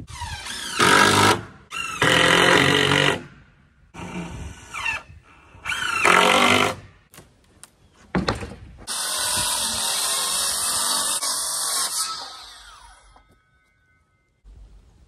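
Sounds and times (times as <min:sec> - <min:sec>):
circular saw cutting plywood: 0:08.8 - 0:13.9.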